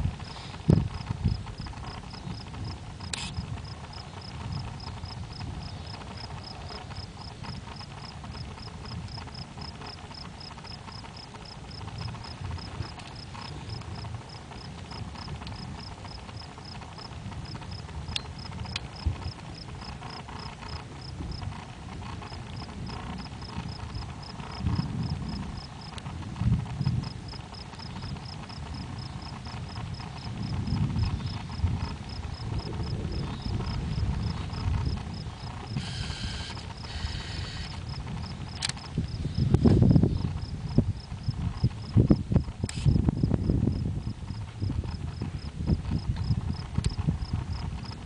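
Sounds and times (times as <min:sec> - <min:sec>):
low rumble: 0:00.0 - 0:48.0
insect chirping in pulses: 0:27.3 - 0:41.9.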